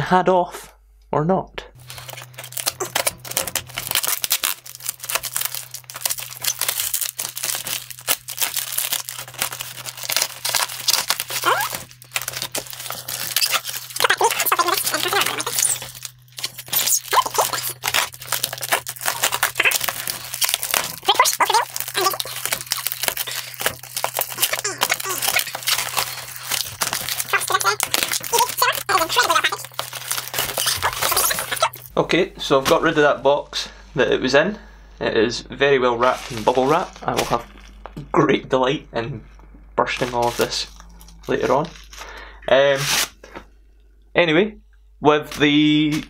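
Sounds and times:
cardboard and tape ripping: 1.8 - 31.9, 39.9 - 43.2.

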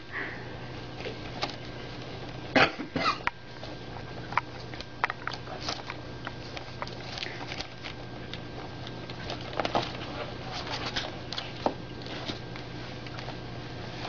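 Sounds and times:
steady low hum: 0.0 - 14.0
puppies scuffling: 8.9 - 14.0.

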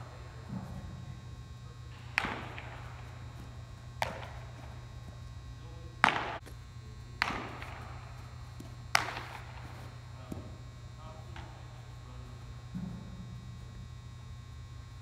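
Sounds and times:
steady low hum: 0.0 - 15.0
ball hit and caught in glove: 1.9 - 3.0, 4.0 - 4.8, 6.0 - 6.6, 7.2 - 10.5.

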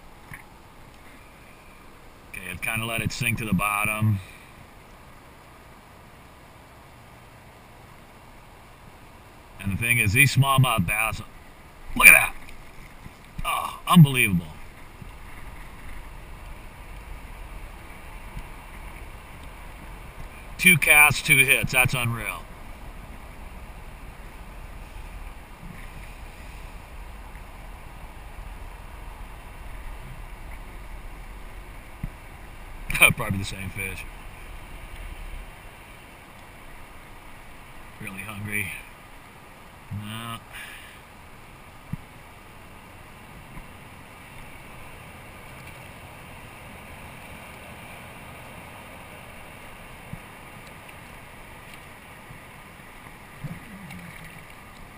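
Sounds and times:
water and wind rushing: 0.0 - 54.9
faint ticks: 0.2 - 1.2, 14.6 - 20.6, 25.0 - 29.0, 34.0 - 37.8, 43.3 - 46.0, 49.4 - 54.9
wind rumble on microphone: 14.2 - 38.1.

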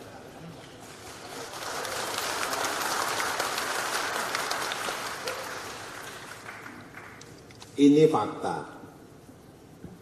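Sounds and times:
audience applauding: 0.7 - 7.4.

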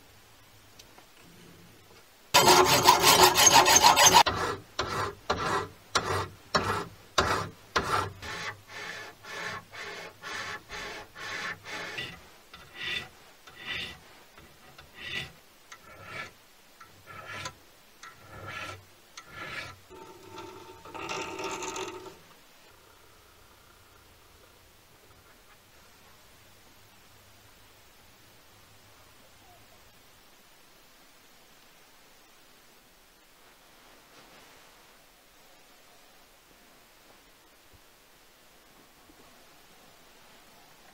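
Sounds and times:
countersink cutting into brass: 2.4 - 4.4
brass rubbed on abrasive paper: 2.4 - 16.4, 17.0 - 17.6, 18.2 - 22.2
loud metal scraping: 2.4 - 22.3.

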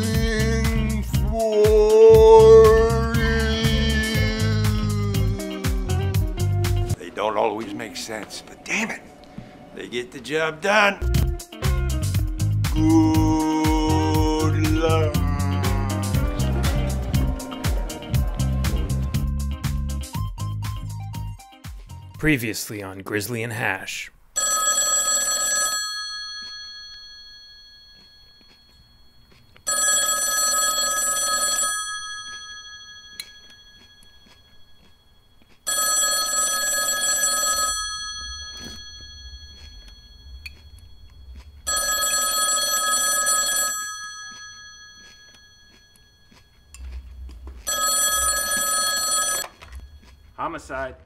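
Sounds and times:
desk telephone ringing: 24.4 - 46.7, 47.6 - 50.3.

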